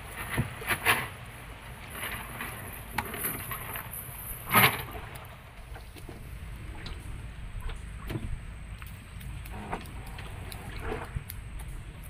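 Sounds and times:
faint scattered ticks: 0:06.8 - 0:12.0.

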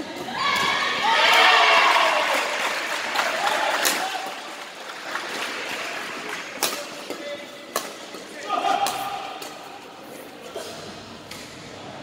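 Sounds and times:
rackets striking a shuttlecock: 0:06.5 - 0:09.8.

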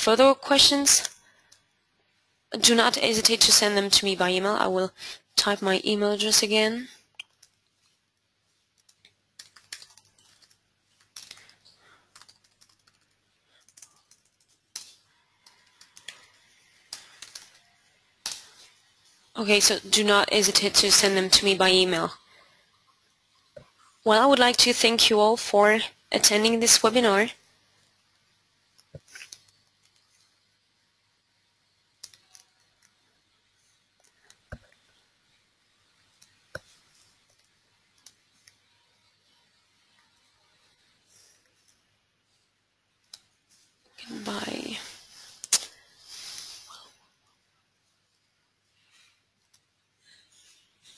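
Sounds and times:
faint keyboard typing: 0:02.6 - 0:50.9
faint clicks: 0:32.0 - 0:33.0.

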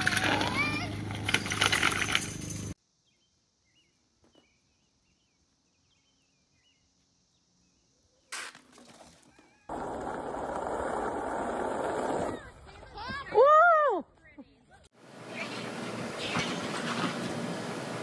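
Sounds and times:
faint bird chirps: 0:03.0 - 0:08.5
loud outdoor noise: 0:15.0 - 0:18.0.

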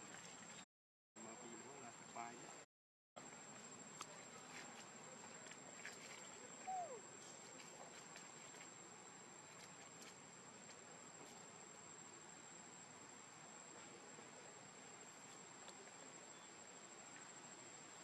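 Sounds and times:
insects trilling: 0:03.2 - 0:13.2, 0:14.2 - 0:18.0.

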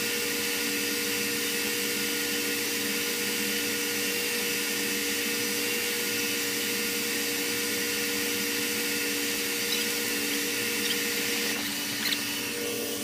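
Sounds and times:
low machinery hums: 0:08.1 - 0:13.0.

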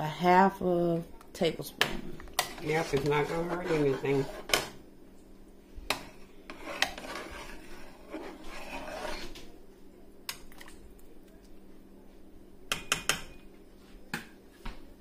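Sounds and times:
metal ladle scraping a pot: 0:02.4 - 0:04.6, 0:05.9 - 0:09.4.

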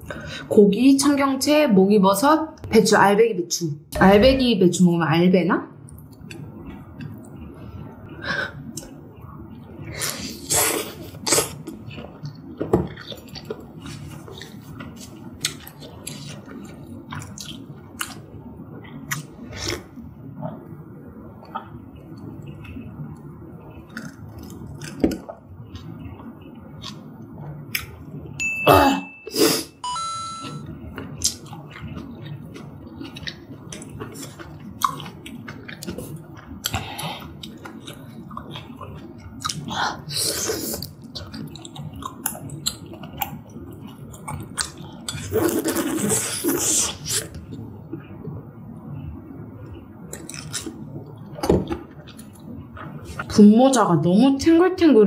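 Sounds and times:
chewing and slurping: 0:31.0 - 0:47.6.

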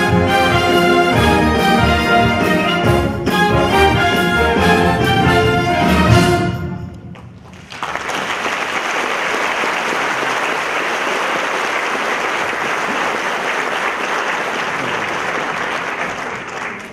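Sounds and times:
audience applauding: 0:07.4 - 0:16.9.

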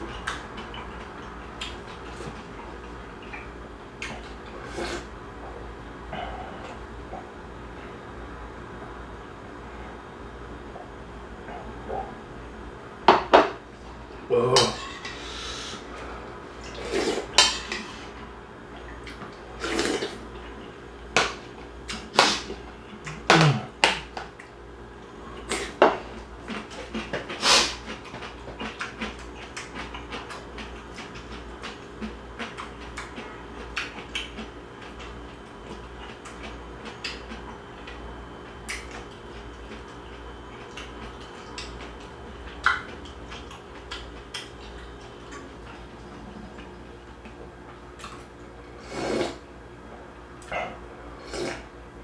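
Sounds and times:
chewing: 0:25.3 - 0:48.5.

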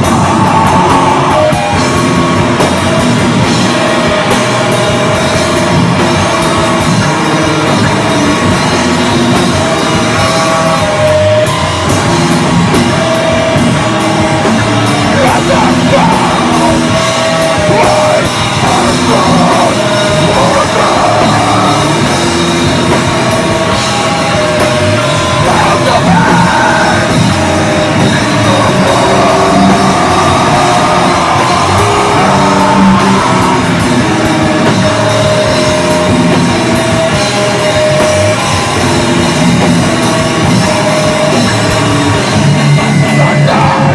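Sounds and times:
punk band playing live: 0:00.0 - 0:43.9
vocalist yelling: 0:15.0 - 0:22.1, 0:25.3 - 0:34.2, 0:43.2 - 0:43.9.

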